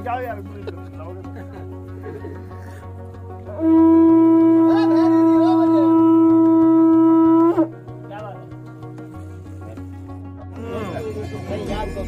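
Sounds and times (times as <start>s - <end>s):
conch shell blown: 3.5s - 7.8s.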